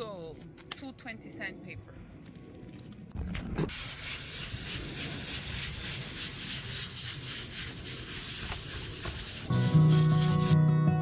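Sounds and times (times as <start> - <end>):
sanding sponge rubbing wood: 3.7 - 10.6.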